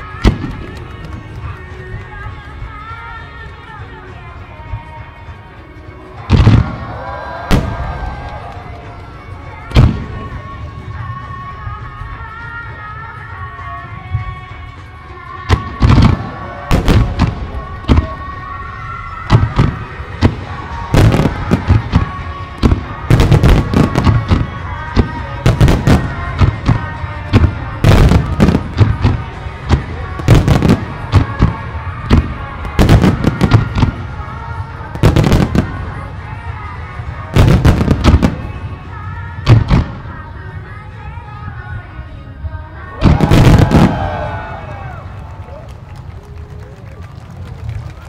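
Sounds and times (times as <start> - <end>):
fireworks bursting: 0.0 - 2.6, 6.2 - 11.1, 15.5 - 40.2, 43.0 - 45.0
music: 0.0 - 48.0.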